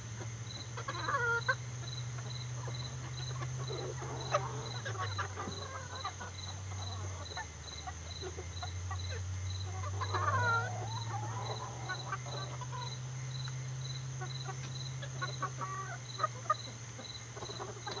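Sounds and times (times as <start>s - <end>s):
chickens clucking: 0.0s - 18.0s
insect chirping: 0.0s - 18.0s
steady low hum: 0.0s - 18.0s
wavering chicken call: 2.6s - 13.0s.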